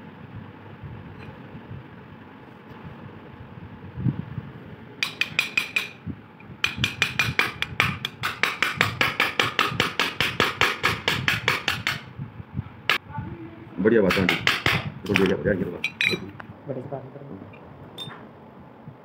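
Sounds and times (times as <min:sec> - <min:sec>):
rapid metal-on-metal tapping: 0:05.0 - 0:06.0, 0:06.6 - 0:12.1, 0:14.1 - 0:15.2.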